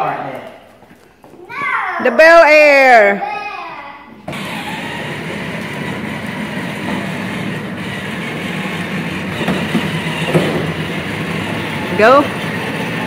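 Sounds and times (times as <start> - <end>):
plastic wheels rolling on concrete: 4.2 - 13.0
toy car electric motor whir: 4.2 - 13.0.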